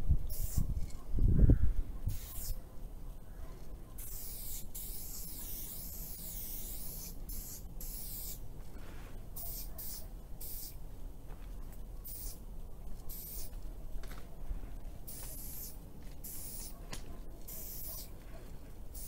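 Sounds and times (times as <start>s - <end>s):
spray-paint can hissing: 0.3s - 0.6s, 2.1s - 2.6s, 4.0s - 8.4s, 9.4s - 10.8s, 12.0s - 12.4s, 13.1s - 13.6s, 15.1s - 16.8s, 17.4s - 18.1s.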